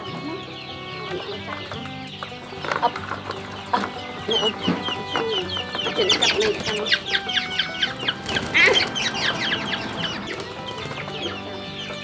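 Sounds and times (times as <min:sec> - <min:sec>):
quail chirping: 0:00.0 - 0:12.0.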